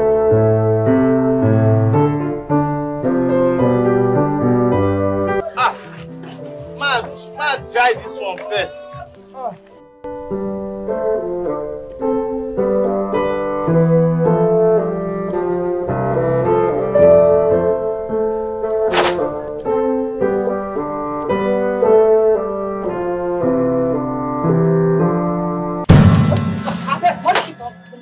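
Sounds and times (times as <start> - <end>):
keyboard music: 0.0 - 28.0
sharp knock: 25.9 - 27.7.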